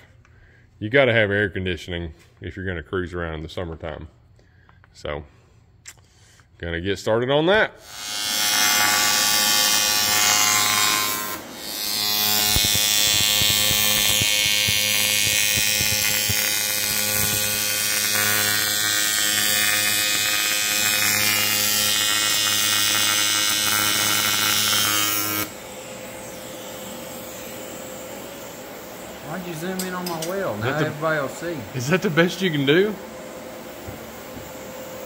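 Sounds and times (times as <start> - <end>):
electric power tool running: 7.8 - 31.2.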